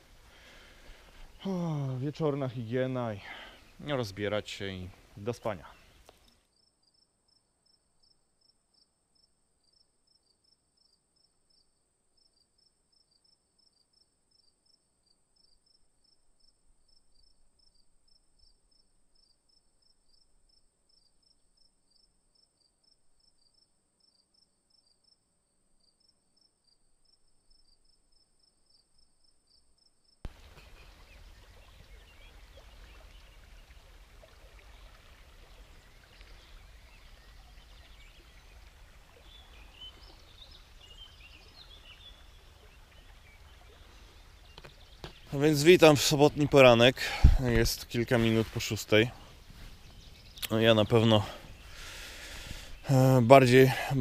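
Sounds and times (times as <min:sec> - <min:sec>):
crickets chirping: 0:06.5 - 0:34.3.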